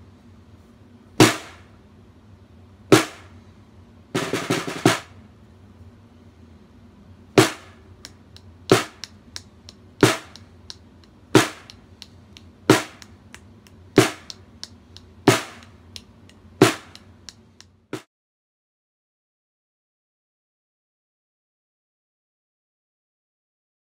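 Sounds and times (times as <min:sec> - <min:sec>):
muffled snare drum groove: 0:01.2 - 0:01.6, 0:02.9 - 0:03.3, 0:04.2 - 0:05.2, 0:07.4 - 0:18.1.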